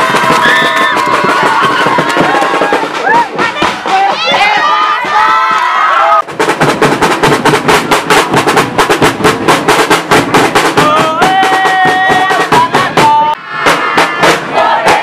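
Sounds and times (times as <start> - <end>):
people shouting: 0.0 - 6.3, 10.8 - 15.0
marching drums beating: 0.0 - 15.0.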